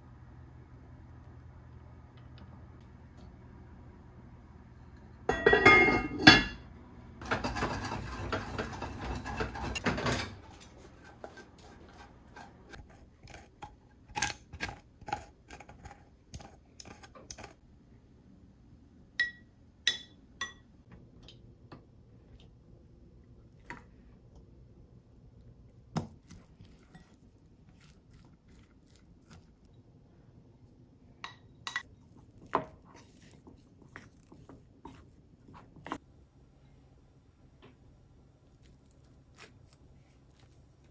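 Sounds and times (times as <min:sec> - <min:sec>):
dishes and utensils clinking: 0:05.3 - 0:06.6, 0:07.2 - 0:11.6.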